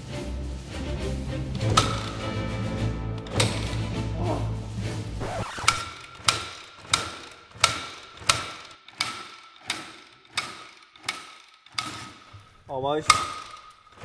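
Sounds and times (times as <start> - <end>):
music: 0.0 - 6.2
motorcycle kickstart clacks: 1.6 - 2.4, 3.2 - 4.0, 5.7 - 14.0.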